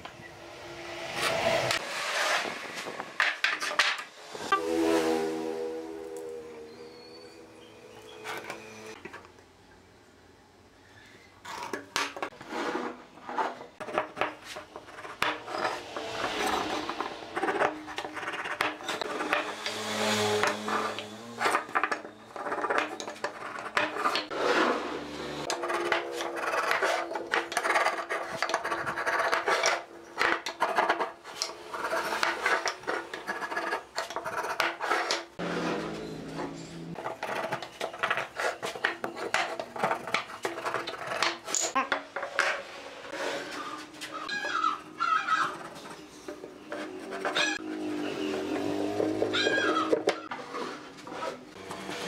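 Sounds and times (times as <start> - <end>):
marking gauge scraping wood: 12.4 - 41.7, 43.1 - 52.0.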